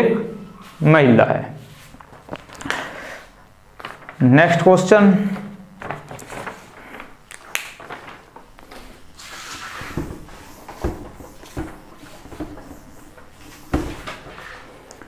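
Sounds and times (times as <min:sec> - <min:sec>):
cloth wiping a whiteboard: 0:00.5 - 0:02.1, 0:08.7 - 0:14.8.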